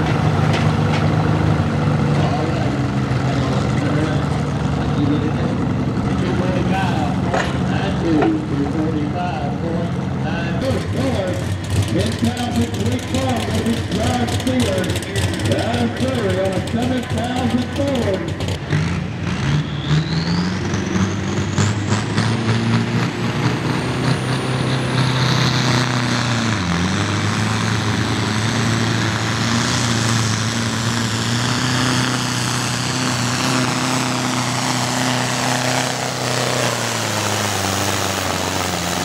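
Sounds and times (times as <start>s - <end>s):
diesel tractor engine at full throttle: 0.0s - 39.0s
high turbo whine: 0.0s - 39.0s.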